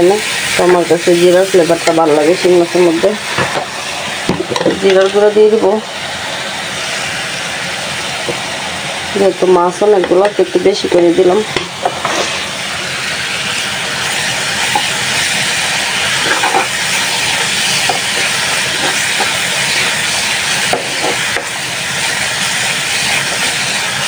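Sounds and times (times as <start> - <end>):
spices frying in oil: 0.0 - 24.0
spoon scraping pan: 11.8 - 12.5, 16.0 - 20.0, 20.7 - 21.5.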